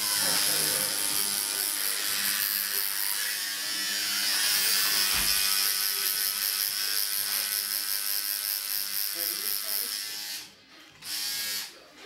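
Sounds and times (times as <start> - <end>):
tattoo machine buzzing: 0.0 - 11.8.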